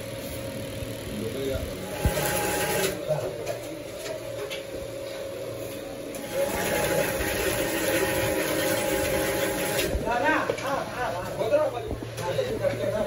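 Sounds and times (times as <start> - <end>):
workshop machinery humming: 0.0 - 13.0.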